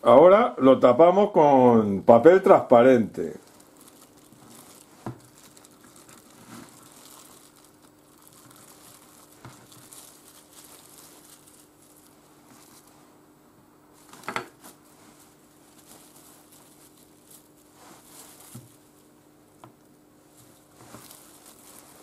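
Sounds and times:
cling film crinkling: 3.2s - 13.0s, 14.0s - 19.2s, 20.3s - 22.0s.

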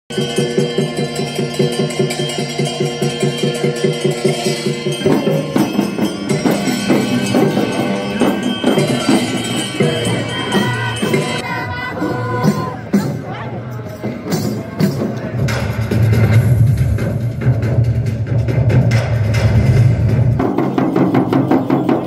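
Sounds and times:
evenly beating music track: 0.1s - 22.0s
voices singing over drums: 5.0s - 13.4s.

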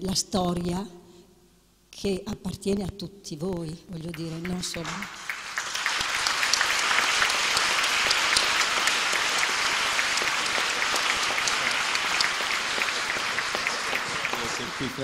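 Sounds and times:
audience applauding: 4.1s - 15.0s.

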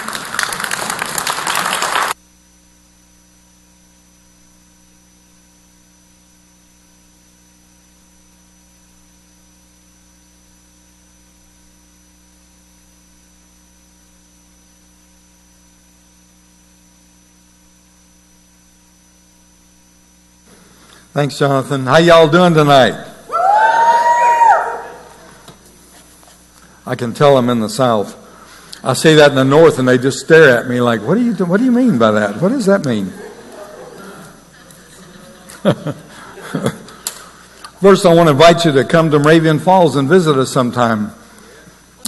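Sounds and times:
audience applauding: 0.0s - 2.2s
electrical mains hum: 0.0s - 42.0s.

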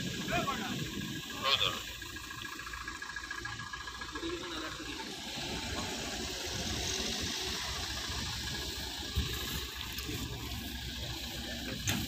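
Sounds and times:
outdoor hiss: 0.0s - 12.0s
vehicle engines idling: 0.0s - 12.0s
faint voices: 0.1s - 8.1s.

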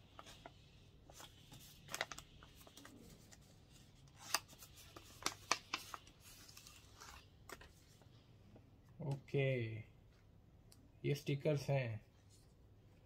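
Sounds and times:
paper rustling: 0.0s - 8.1s.

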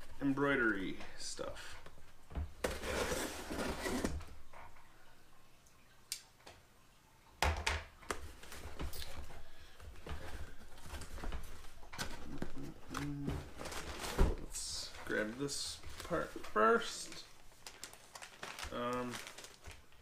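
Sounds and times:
cardboard flaps rustling: 8.1s - 20.0s
packing tape tearing: 17.6s - 19.8s.

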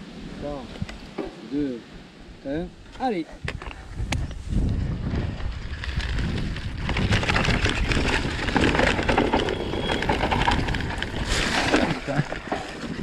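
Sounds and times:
wind buffeting microphone: 0.0s - 13.0s
tyres crunching over dirt: 4.8s - 13.0s
bike rattles and knocks: 5.0s - 13.0s.

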